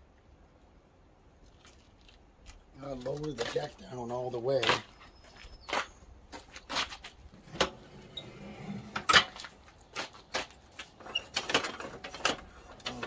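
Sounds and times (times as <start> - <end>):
metal clicks and clunks: 7.4 - 9.5, 11.0 - 13.0.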